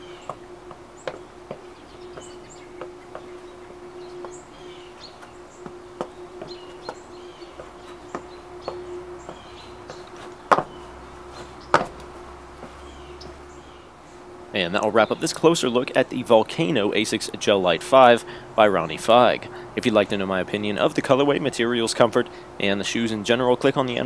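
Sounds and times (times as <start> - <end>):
small birds chirping: 0.0 - 17.0
faint steady hum: 0.0 - 24.0
sharp knocks: 5.6 - 10.8, 11.6 - 13.4.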